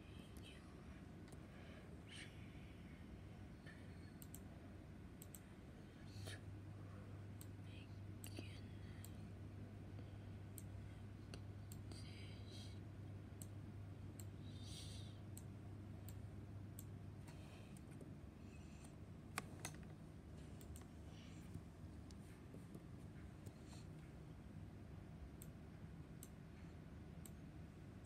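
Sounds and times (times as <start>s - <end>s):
low steady hum: 0.0s - 28.0s
computer clicks: 4.1s - 4.5s, 5.2s - 5.4s, 18.8s - 20.0s, 20.6s - 20.9s.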